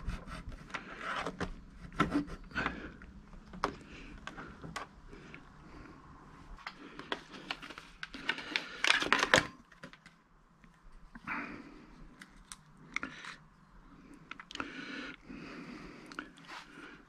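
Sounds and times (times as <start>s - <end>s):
plastic blister pack crinkling: 6.7s - 10.2s.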